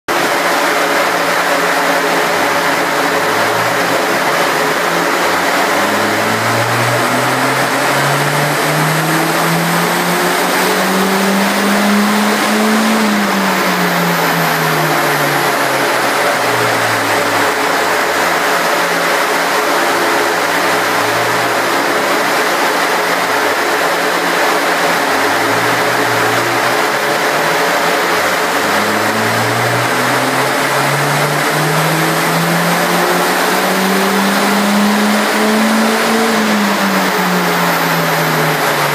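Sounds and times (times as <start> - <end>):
car engine revving: 0.1 - 38.9
cooling fan air rush: 0.2 - 38.9.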